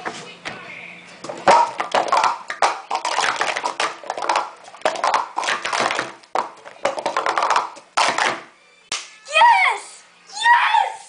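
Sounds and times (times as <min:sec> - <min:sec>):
plastic cups clattering: 0:01.2 - 0:08.5.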